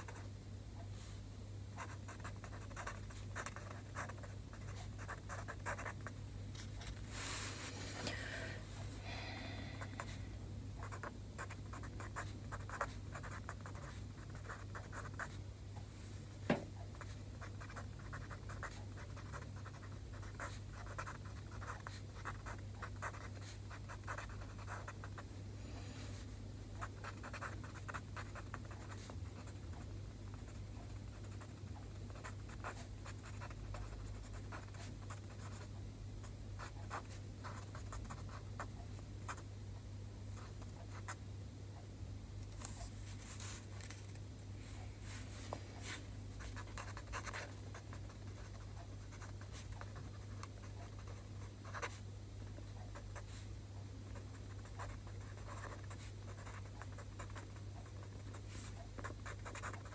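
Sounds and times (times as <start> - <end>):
steady low hum: 0.0 - 59.9
marker pen scratching on paper: 1.8 - 7.0, 10.8 - 15.4, 16.9 - 25.2, 26.8 - 35.7, 36.6 - 38.4, 45.8 - 52.0, 54.1 - 59.9.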